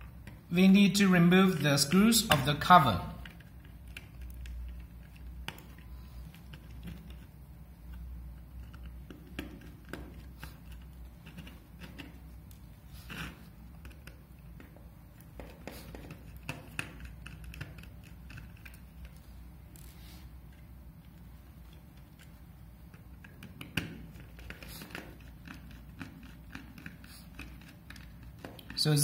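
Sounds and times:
screwdriver clicking and scraping: 0:03.2 - 0:20.6.

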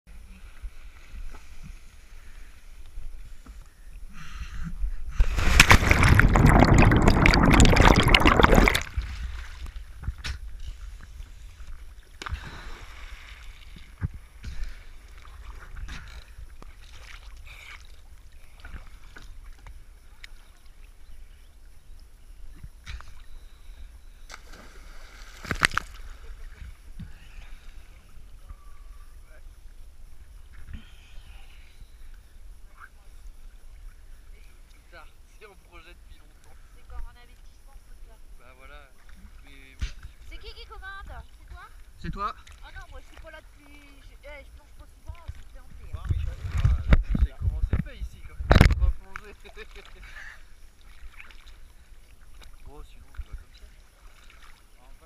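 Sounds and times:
water sloshing and splashing: 0:05.2 - 0:21.1, 0:24.3 - 0:28.8, 0:38.9 - 0:55.0.

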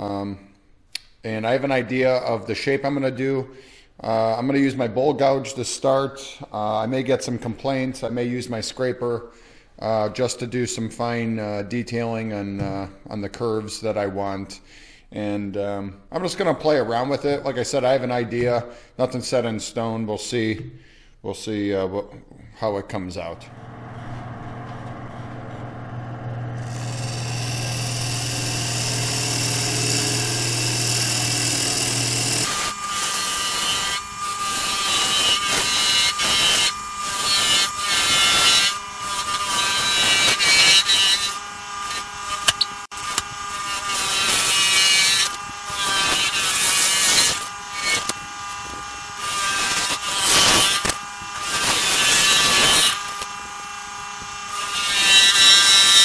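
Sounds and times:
wood lathe humming: 0:23.4 - 0:56.0
gouge cutting spinning wood: 0:23.5 - 0:56.0.

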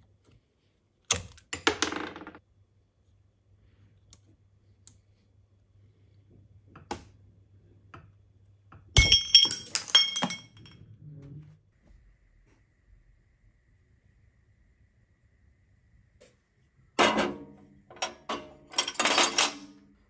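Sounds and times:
metal part bouncing with clinks: 0:09.0 - 0:10.8, 0:17.9 - 0:19.8.

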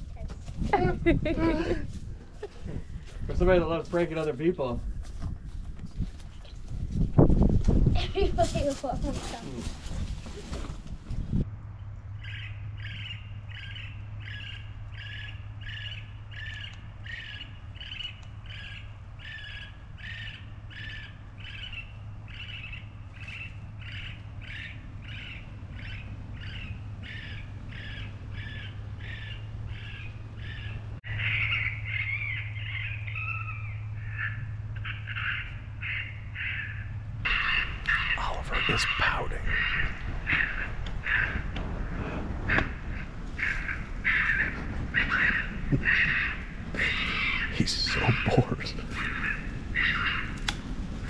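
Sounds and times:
electronic raccoon call squalling: 0:29.8 - 0:41.5, 0:42.5 - 0:50.4.

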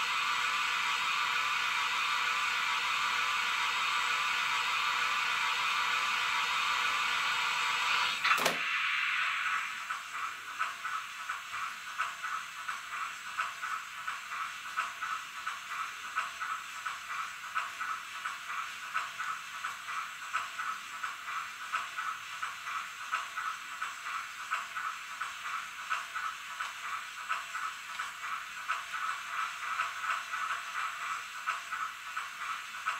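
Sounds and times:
rhythmic steam engine beat: 0:00.0 - 0:07.8, 0:08.4 - 0:32.9
steam hiss: 0:00.0 - 0:32.9
sharp click: 0:08.2 - 0:08.6.

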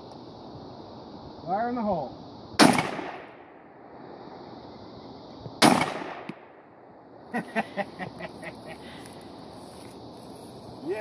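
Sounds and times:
shotgun blast: 0:02.6 - 0:03.4, 0:05.6 - 0:06.4.

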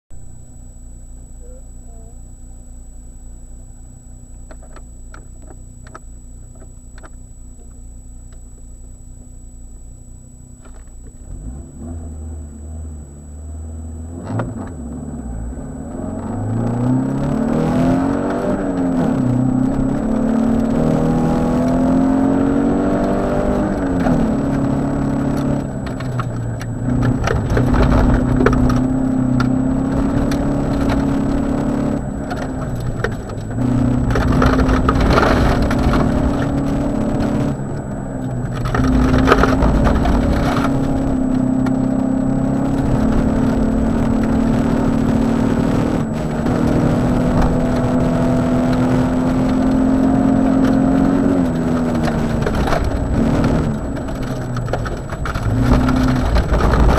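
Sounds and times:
rally car engine revving: 0:09.7 - 0:56.9
tyres on gravel: 0:21.7 - 0:56.9.

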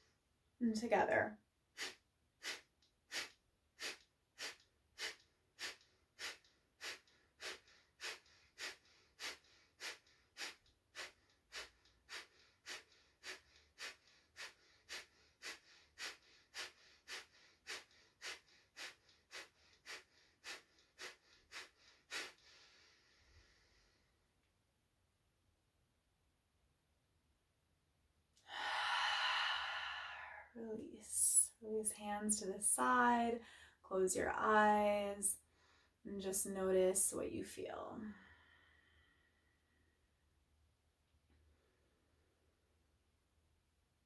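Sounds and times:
sharp forceful exhales through nose: 0:01.8 - 0:23.9
long deep inhale: 0:01.8 - 0:24.1, 0:28.4 - 0:30.6.

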